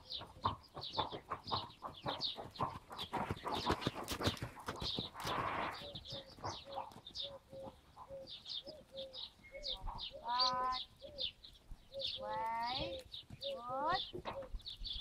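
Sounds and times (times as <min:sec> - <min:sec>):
high bird chirps: 0:05.5 - 0:15.0.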